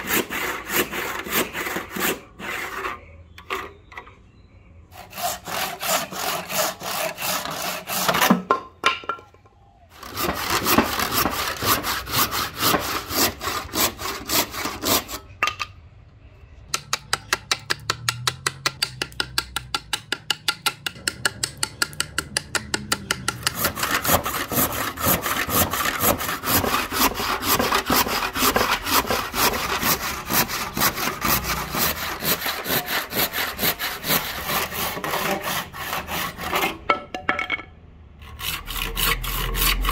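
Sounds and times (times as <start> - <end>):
panel saw rasping through wood: 0.0 - 3.0, 5.0 - 8.5, 10.0 - 15.2, 23.0 - 36.9, 38.2 - 39.9.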